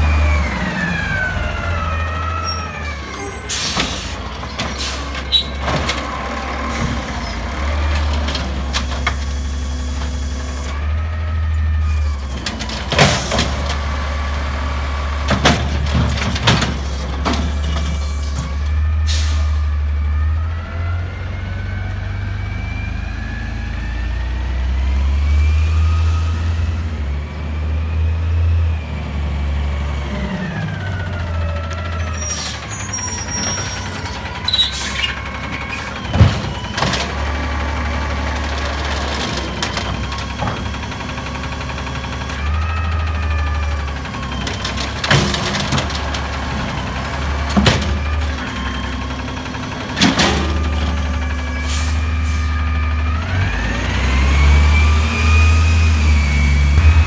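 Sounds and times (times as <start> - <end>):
truck engine revving: 0.0 - 57.0
bangs and clatters of cart: 15.2 - 18.1, 36.0 - 37.2, 44.3 - 48.5, 49.8 - 51.1.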